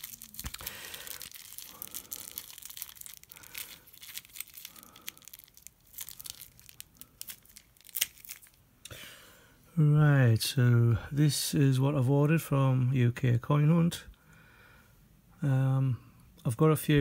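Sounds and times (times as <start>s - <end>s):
plastic bag crinkling and tearing: 0.0s - 8.6s.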